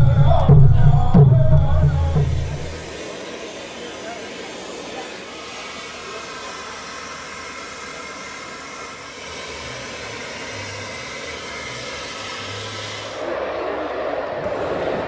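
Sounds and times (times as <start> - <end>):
loud low noise: 0.0 - 6.6
compressed gas rushing through hose: 2.7 - 13.4.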